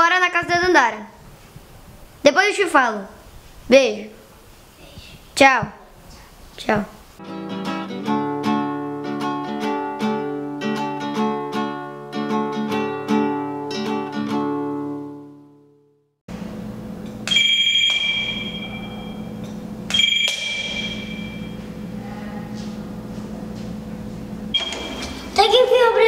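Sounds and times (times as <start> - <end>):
plucked acoustic guitar music: 7.2 - 15.4
electronic doorbell ringing: 17.3 - 19.4, 20.0 - 21.6, 24.6 - 25.2.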